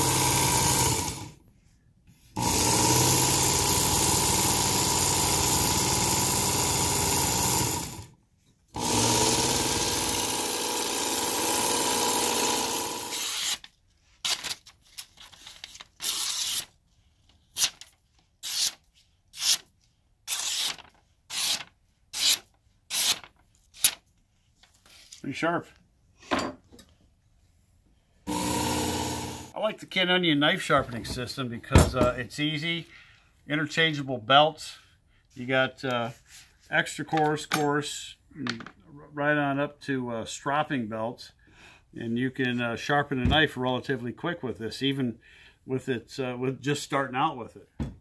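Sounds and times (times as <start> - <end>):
blade slicing paper: 13.1 - 16.8, 17.5 - 19.7, 20.3 - 24.0.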